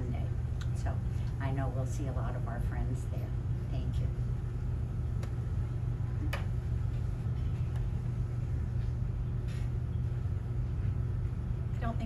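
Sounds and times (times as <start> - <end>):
low room rumble: 0.0 - 12.0.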